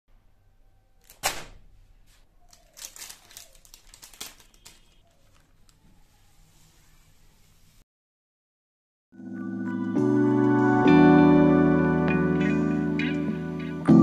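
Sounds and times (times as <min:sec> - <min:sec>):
plastic wrapper crinkling: 0:01.0 - 0:01.5, 0:02.1 - 0:06.0
paper rustling: 0:01.0 - 0:07.5.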